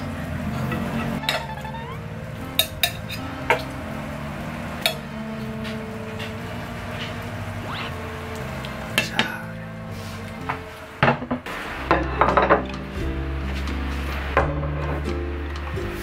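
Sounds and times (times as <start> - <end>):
metal tongs clinking: 2.6 - 3.7.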